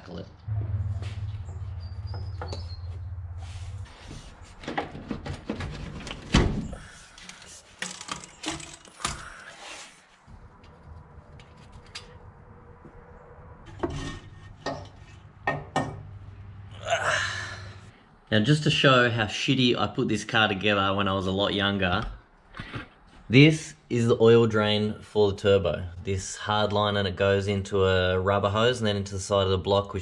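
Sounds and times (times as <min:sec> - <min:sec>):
low steady hum: 0:00.0 - 0:07.0
metal engine parts clanking: 0:07.2 - 0:09.4.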